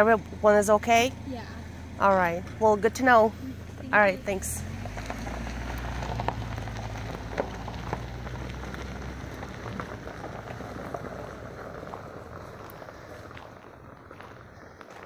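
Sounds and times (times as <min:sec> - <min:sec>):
vehicle engine idling: 0:00.0 - 0:15.0
crunching footsteps: 0:03.6 - 0:15.0.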